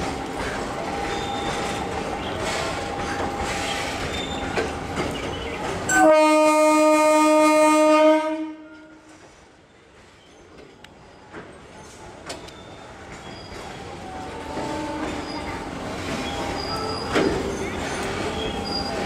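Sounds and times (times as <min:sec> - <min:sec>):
train rumbling on rails: 0:00.0 - 0:19.0
loud train horn blast: 0:05.9 - 0:09.1, 0:14.2 - 0:15.5.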